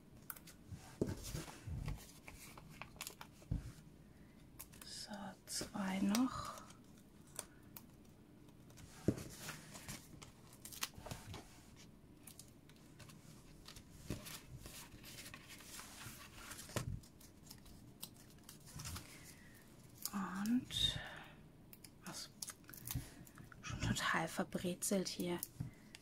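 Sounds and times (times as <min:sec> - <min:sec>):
paper rustling: 0:12.2 - 0:19.6.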